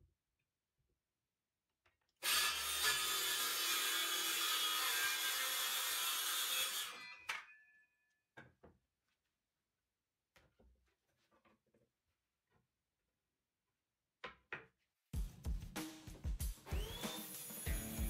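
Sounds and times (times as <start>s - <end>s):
circular saw cutting wood: 2.2s - 7.3s, 16.8s - 18.0s.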